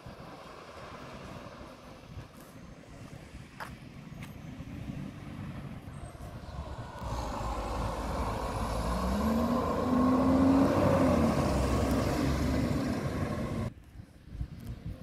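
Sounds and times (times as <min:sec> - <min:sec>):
garbage truck diesel engine: 0:03.9 - 0:13.7.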